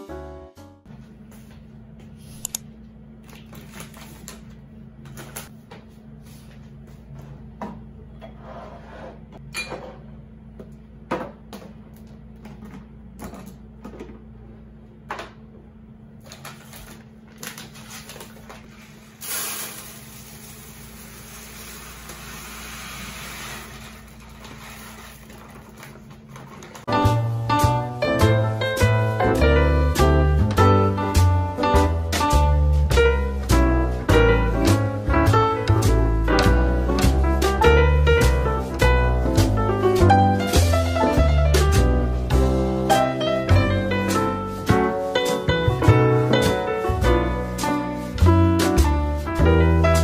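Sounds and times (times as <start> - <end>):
rice pouring into plastic canister: 18.7 - 26.7.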